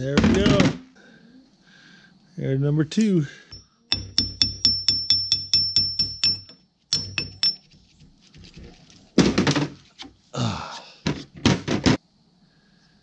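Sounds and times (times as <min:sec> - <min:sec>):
hammer knocking hatchet head: 0:03.5 - 0:07.6
metal parts clinking on bench: 0:03.5 - 0:07.7.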